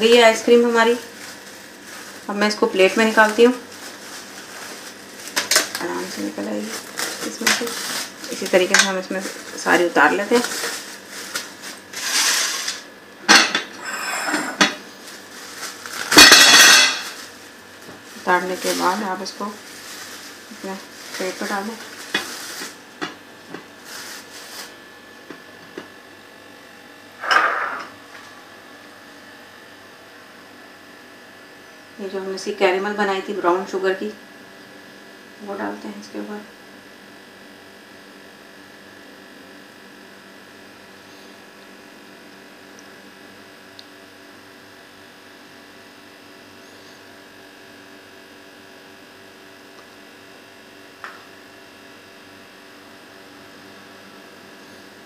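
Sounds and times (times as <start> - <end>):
electrical hum with hiss: 0.0 - 55.0
plastic cling film rustling: 0.1 - 12.9, 14.8 - 25.0.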